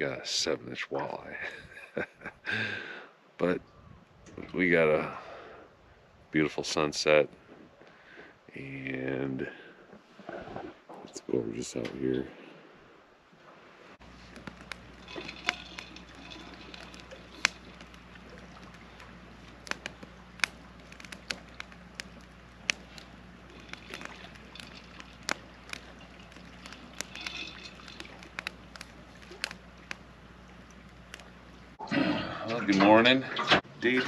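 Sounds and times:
campfire crackling and popping: 14.0s - 31.8s.

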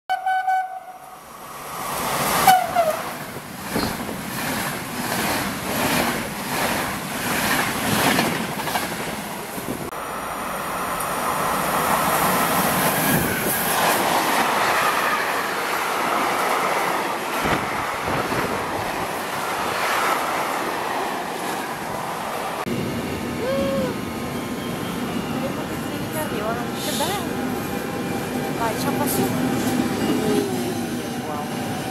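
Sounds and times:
train horn: 0.1s - 1.1s, 2.4s - 3.1s
freight train rushing past: 0.2s - 31.9s
train wheels clattering over rail joints: 3.2s - 9.3s.

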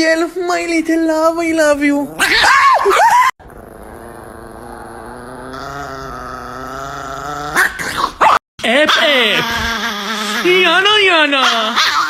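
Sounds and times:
small dog growling: 2.0s - 2.6s, 3.4s - 8.4s, 9.0s - 10.8s
small dog snarling: 3.4s - 10.8s.

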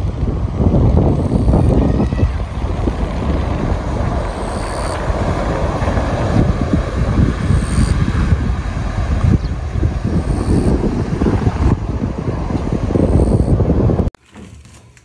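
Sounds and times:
wind buffeting microphone: 0.0s - 14.2s.

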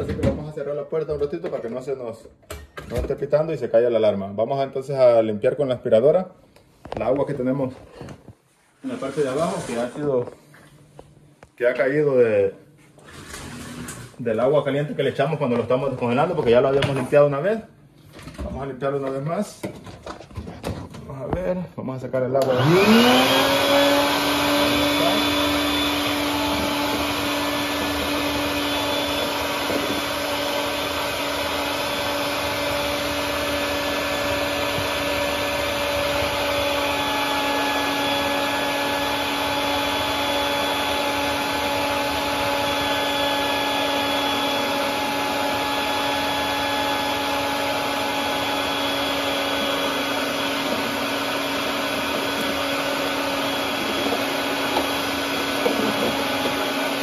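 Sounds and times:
wet dry vacuum running: 8.8s - 10.7s, 22.4s - 57.0s.

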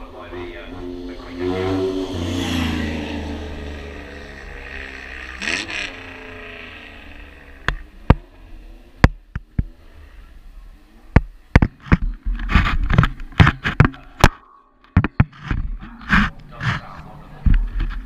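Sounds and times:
vehicle engine passing fast: 0.0s - 9.0s.

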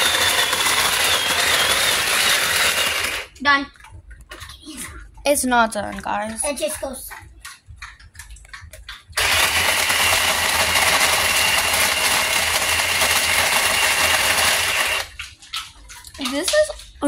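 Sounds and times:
ice machine grinding ice: 0.0s - 3.4s, 9.2s - 15.2s.

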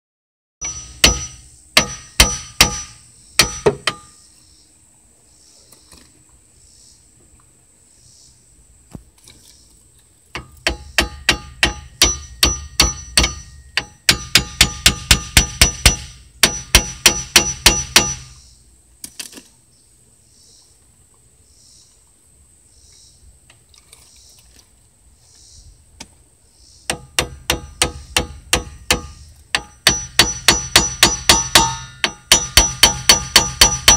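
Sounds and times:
hammer ringing on metal: 0.6s - 4.2s, 10.4s - 18.4s, 26.9s - 33.9s.

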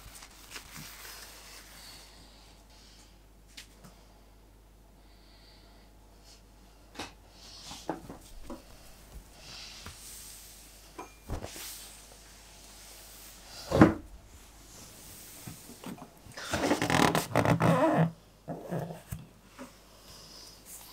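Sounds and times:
soft rustle: 0.0s - 2.2s.

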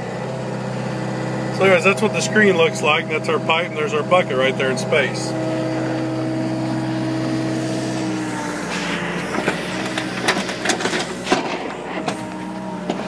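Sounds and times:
excavator engine humming: 0.0s - 13.0s
sharp clicks and knocks: 9.4s - 13.0s.

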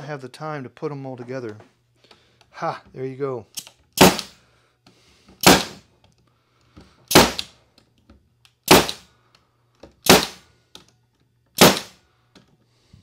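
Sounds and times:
pneumatic stapler firing: 3.6s - 4.4s, 5.4s - 5.8s, 7.1s - 7.5s, 8.6s - 9.0s, 10.0s - 10.4s, 11.6s - 12.0s.

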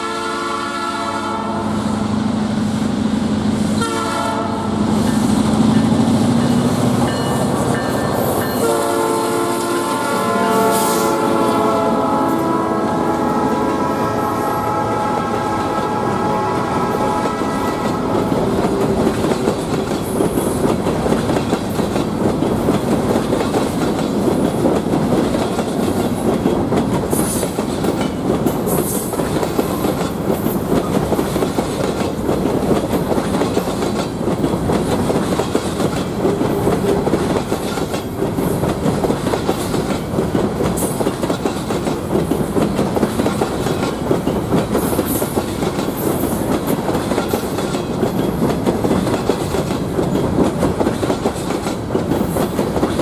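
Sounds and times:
train horn: 0.0s - 2.1s, 3.8s - 4.9s, 7.1s - 18.9s
train wheels rumbling on rails: 0.0s - 53.0s.

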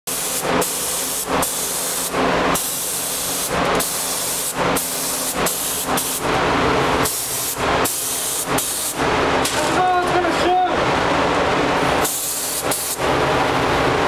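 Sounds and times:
paint spray gun hissing: 0.1s - 6.3s, 7.0s - 9.0s, 12.0s - 13.0s.

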